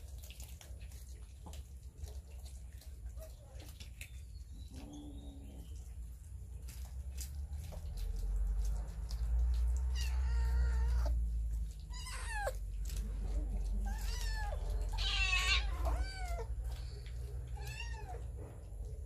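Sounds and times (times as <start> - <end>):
cats meowing: 9.5 - 18.9.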